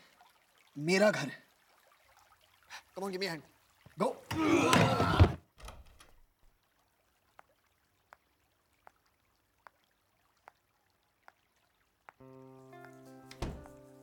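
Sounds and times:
faint ticks: 7.2s - 12.2s
held music chord: 12.2s - 14.0s.

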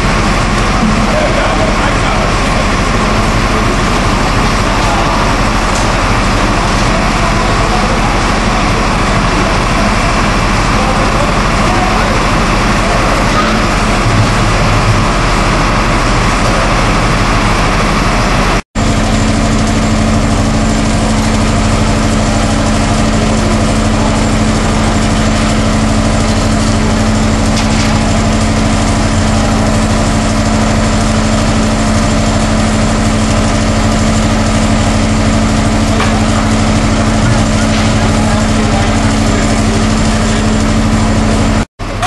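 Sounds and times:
loud engine-like drone: 0.0s - 42.0s
steady low hum: 0.0s - 42.0s.

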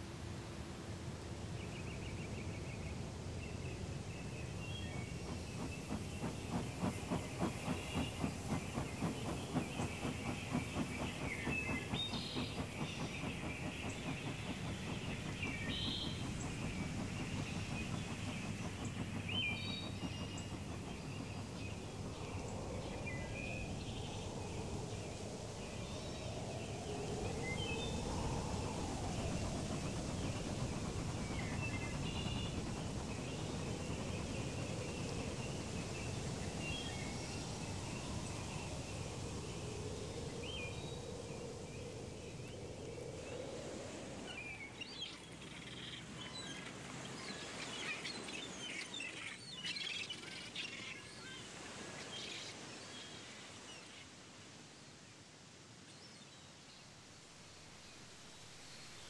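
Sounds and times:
birds chirping: 4.3s - 24.7s.

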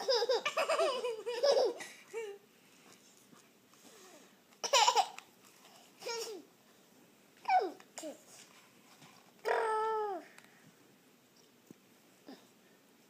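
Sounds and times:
toddler giggling: 0.0s - 2.4s, 4.6s - 5.2s.

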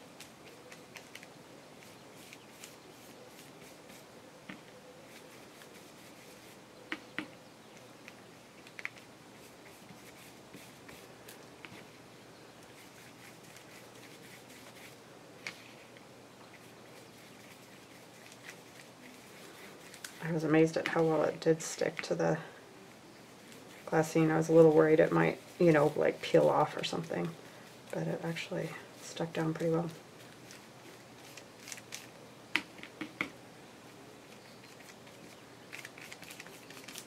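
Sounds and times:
low room hiss: 0.0s - 37.0s
paper handling sounds: 0.1s - 4.0s, 16.5s - 21.1s, 29.2s - 32.1s, 34.2s - 37.0s
sharp taps and clicks: 32.6s - 33.4s.

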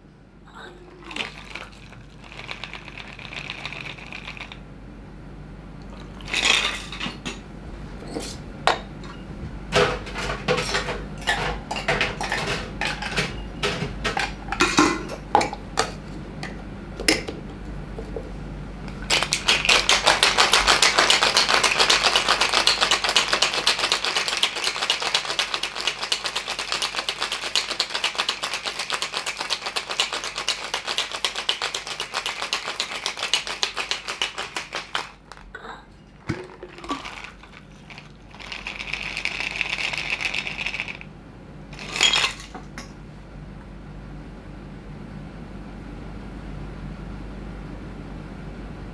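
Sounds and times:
drink pouring into glass: 1.0s - 4.6s, 36.3s - 39.4s
ice and tins clinking: 1.0s - 4.6s, 6.0s - 7.4s, 19.1s - 41.0s, 41.8s - 42.9s
ice rattling in cocktail shaker: 1.0s - 4.6s, 6.0s - 7.2s, 19.0s - 35.5s, 36.3s - 41.1s, 41.8s - 42.9s.

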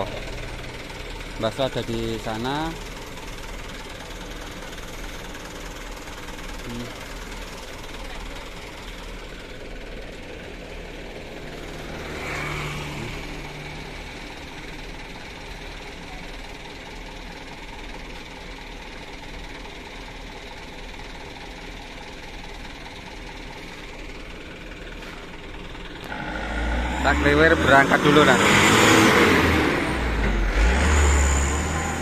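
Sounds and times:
diesel truck engine idling: 0.0s - 32.0s.

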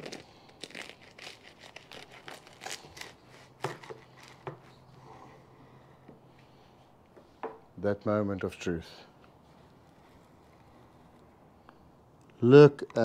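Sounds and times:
knife crunching through pastry crust: 0.0s - 4.8s.

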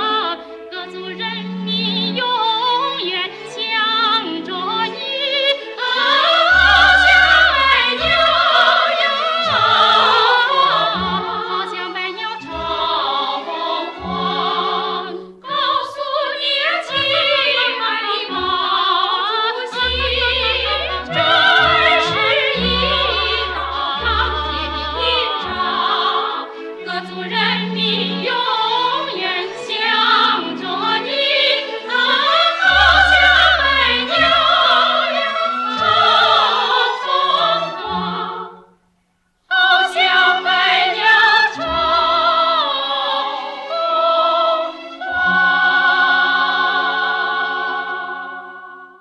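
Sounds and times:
backing vocals: 0.8s - 38.6s.

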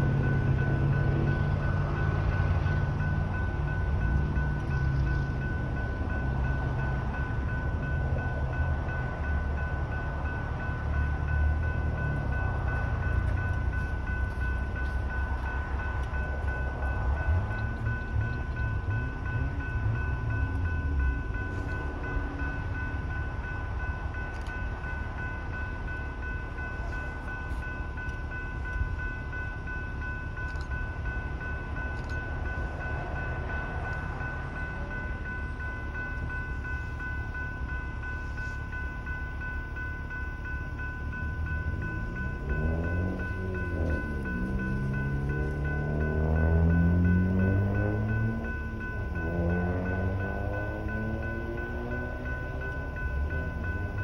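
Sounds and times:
passing train rumble: 0.0s - 54.0s
railroad crossing bells ringing: 0.0s - 54.0s.

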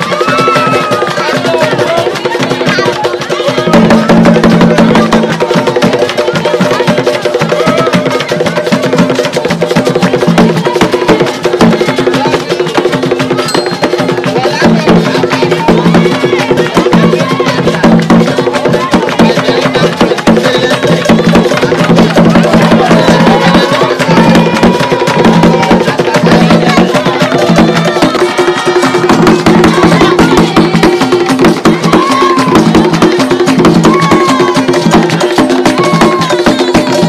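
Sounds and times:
drums playing rhythm: 0.0s - 37.0s
voices calling: 10.2s - 37.0s
clicking wood block percussion: 12.3s - 14.5s.

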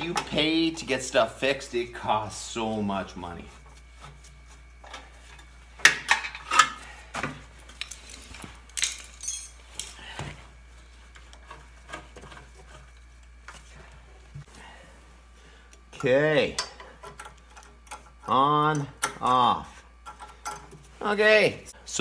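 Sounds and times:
metal parts clanking: 7.8s - 10.0s.

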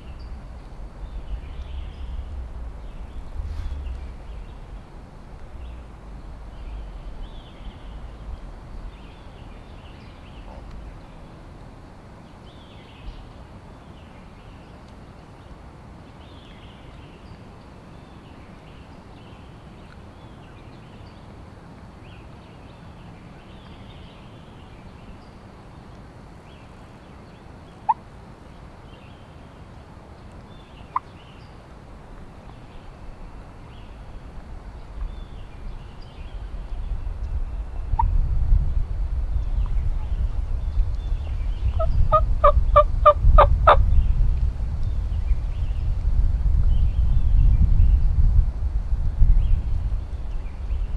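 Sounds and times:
faint birdsong: 0.0s - 46.0s, 46.6s - 48.3s, 49.2s - 50.9s
wild turkey clucks: 41.8s - 43.8s.

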